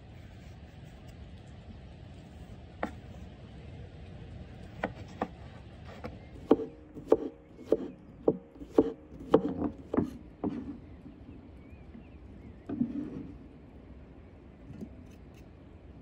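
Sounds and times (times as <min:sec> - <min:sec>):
knife chopping on wooden board: 0:04.8 - 0:10.8.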